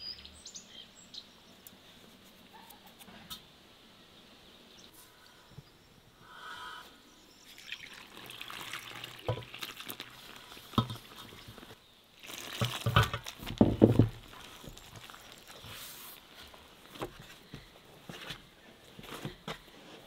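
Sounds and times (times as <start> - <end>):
wet squishing of cheese curds: 7.8 - 17.1.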